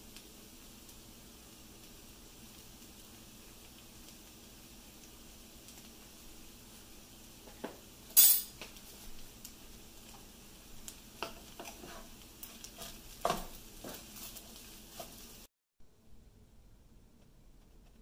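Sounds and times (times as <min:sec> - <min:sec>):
food sizzling in a pan: 0:00.0 - 0:15.5
spatula scraping and knocking pan: 0:10.9 - 0:15.4.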